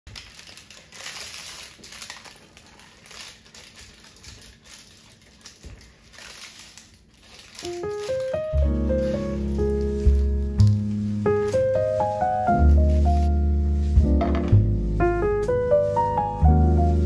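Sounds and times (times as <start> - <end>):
music: 7.7 - 17.0.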